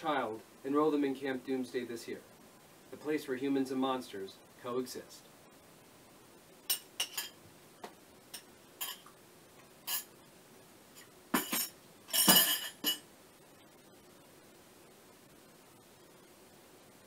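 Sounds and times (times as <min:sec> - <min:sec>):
spoon clinking on dishes: 0:06.6 - 0:07.4, 0:08.4 - 0:09.1, 0:09.8 - 0:10.1, 0:11.4 - 0:13.0.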